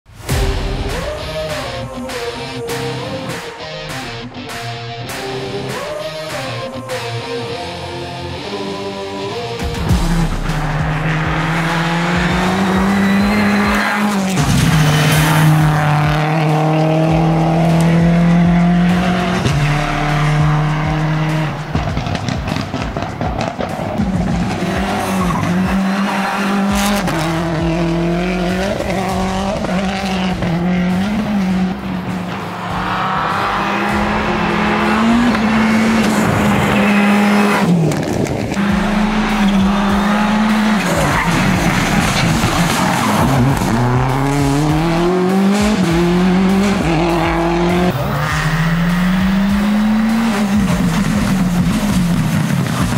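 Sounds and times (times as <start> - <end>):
rally car engine at high revs: 9.8 - 52.9
tyres skidding on gravel: 49.6 - 52.9.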